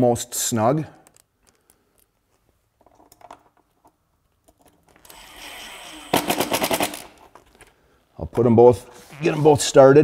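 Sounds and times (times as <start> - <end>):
small parts clicking: 1.0 - 2.2
cordless driver whirring: 5.1 - 7.0.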